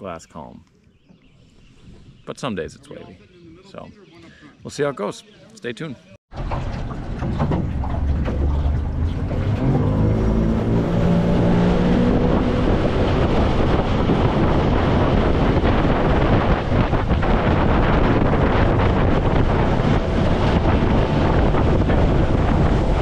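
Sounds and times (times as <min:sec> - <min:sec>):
wind noise on microphone: 0:01.1 - 0:04.7, 0:06.4 - 0:23.0
outboard motor running: 0:06.3 - 0:23.0
water rushing along hull: 0:06.3 - 0:23.0.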